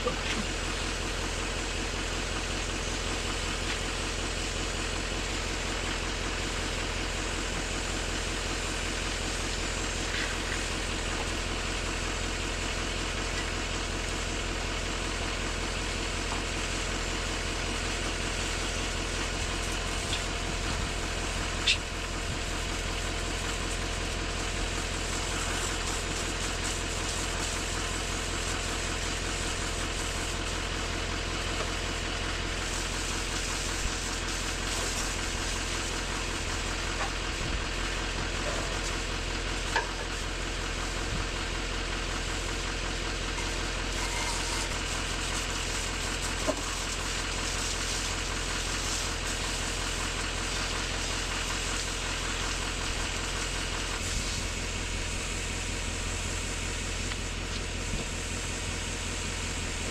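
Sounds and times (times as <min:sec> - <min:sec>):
pressure washer spraying water: 0:15.6 - 0:41.1, 0:42.3 - 0:58.8.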